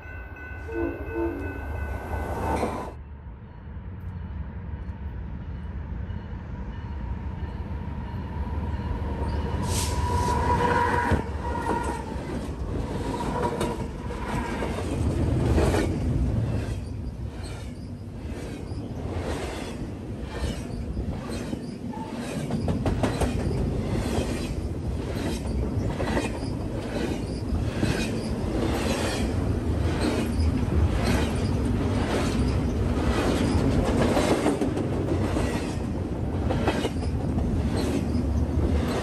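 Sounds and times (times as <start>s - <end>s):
freight train rumbling past: 0.0s - 39.0s.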